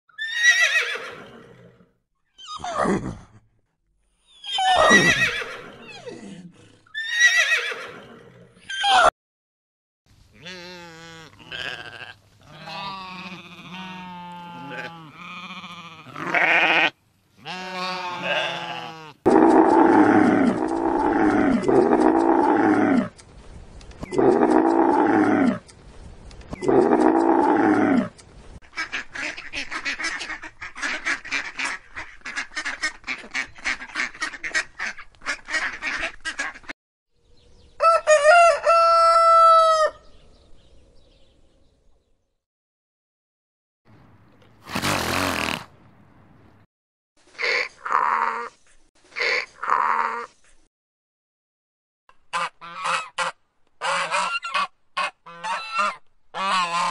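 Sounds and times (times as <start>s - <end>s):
lamb bleating: 10.4s - 19.2s
ducks quacking: 28.6s - 36.7s, 52.3s - 56.9s
rooster crowing: 37.8s - 40.1s.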